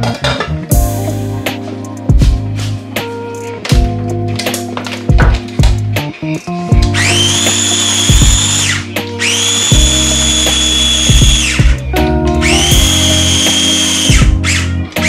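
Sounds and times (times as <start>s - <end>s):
food chopper motor whine: 7.0s - 11.7s, 12.4s - 14.6s.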